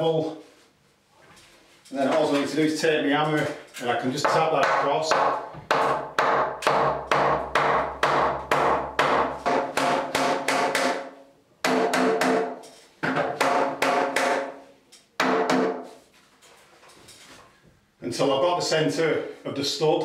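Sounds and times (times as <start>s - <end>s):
hammer knocking timber: 4.2s - 14.5s.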